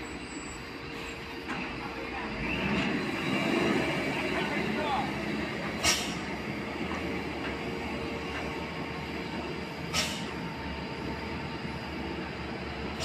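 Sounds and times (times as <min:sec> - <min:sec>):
diesel truck engine: 0:00.0 - 0:13.0
short sharp air hisses: 0:05.8 - 0:06.3, 0:09.9 - 0:10.4.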